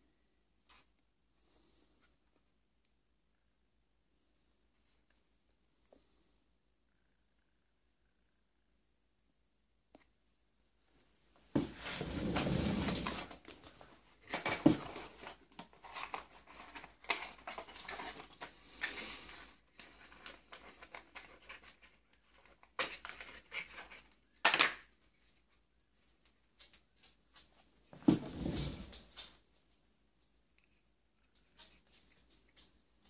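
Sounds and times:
box sliding out of sleeve: 11.6 - 13.4, 28.0 - 29.1.

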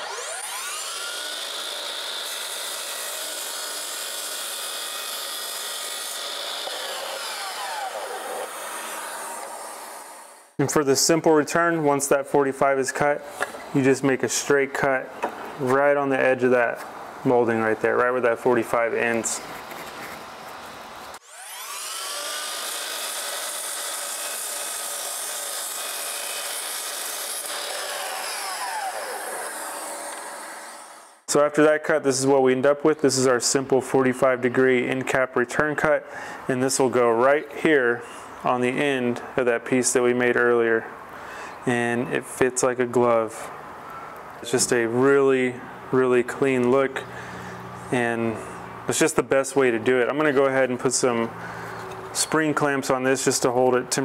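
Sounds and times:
miter saw cutting wood: 0.0 - 10.6, 19.1 - 31.4.

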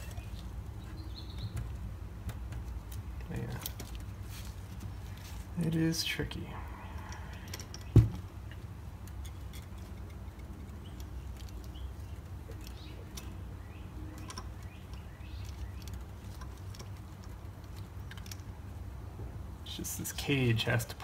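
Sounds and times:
steady low hum: 0.0 - 21.0
metal joint clicking and tapping: 14.1 - 18.5.

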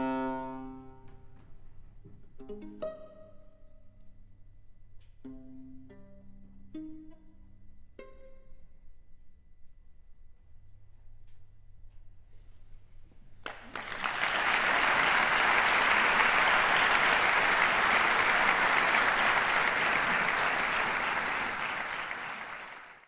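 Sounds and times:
audience applauding: 13.4 - 23.0.

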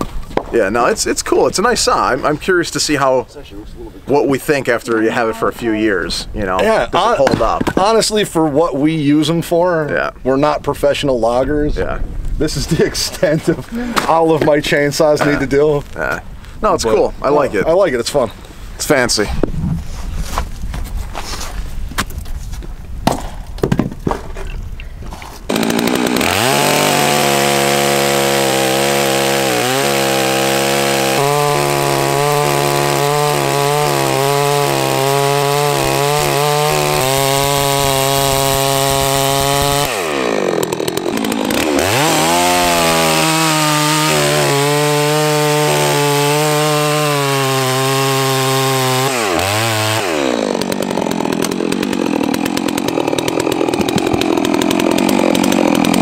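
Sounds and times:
chainsaw cutting log: 13.2 - 14.6, 25.1 - 56.0.

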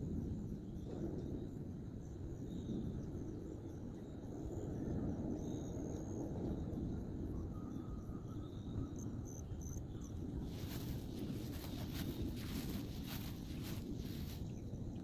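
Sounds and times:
wind rumble on microphone: 0.0 - 15.0
faint insect chirps: 7.4 - 14.6
grass and brush rustling: 10.4 - 14.6.

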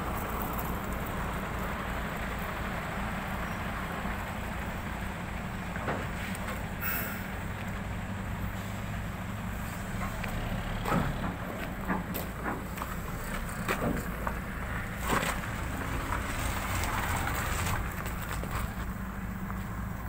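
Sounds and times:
truck diesel engine idling: 0.0 - 20.0
light knocks and clicks: 10.0 - 14.4.

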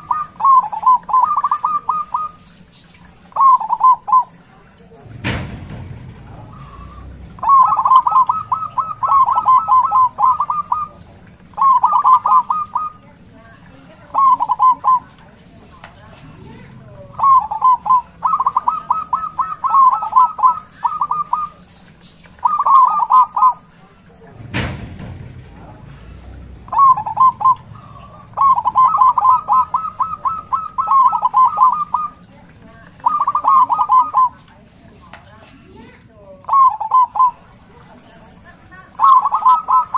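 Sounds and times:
dove cooing: 0.0 - 24.4, 25.2 - 34.9, 36.4 - 39.9.

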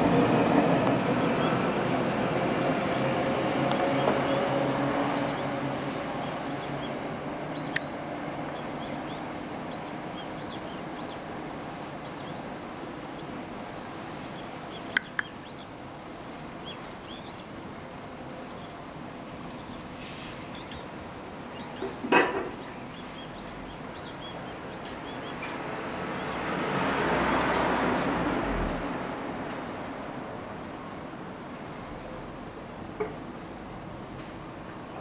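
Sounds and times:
small birds chirping: 2.6 - 26.5
sharp clicks: 14.9 - 15.3.

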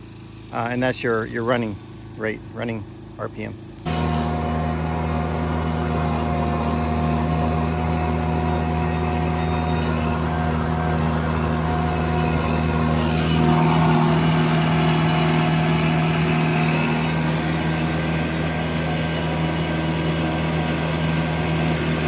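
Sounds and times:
rock saw trencher engine running: 0.0 - 22.0.

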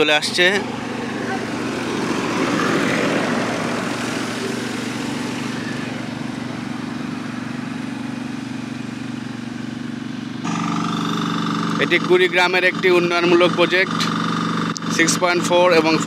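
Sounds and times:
passing road vehicle: 0.0 - 11.8
road roller engine running: 0.0 - 16.0.

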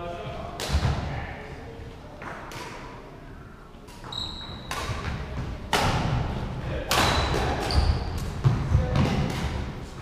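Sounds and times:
rackets hitting shuttlecock: 3.9 - 9.8
shoes squeaking on wooden floor: 4.0 - 4.7, 7.1 - 8.3.

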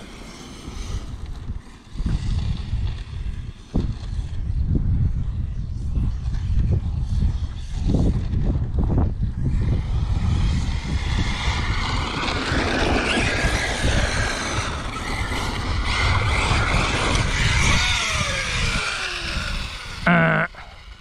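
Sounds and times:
electric motor whining: 13.2 - 21.0.

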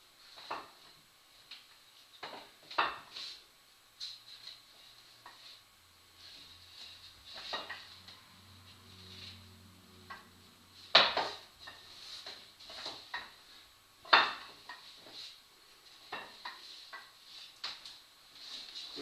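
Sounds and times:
wooden ladder rungs knocking on wall: 0.4 - 0.9, 2.2 - 3.1, 7.3 - 7.9, 10.9 - 13.4, 14.0 - 15.1, 16.1 - 17.8.

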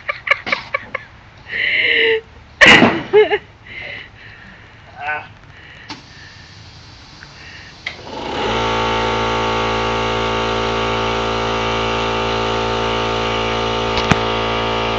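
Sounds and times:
air compressor running: 5.9 - 14.9.

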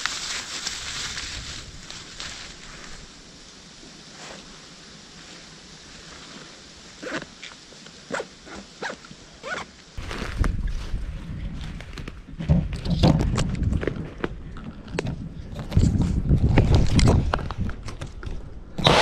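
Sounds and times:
low rumbling on microphone: 10.0 - 18.8.

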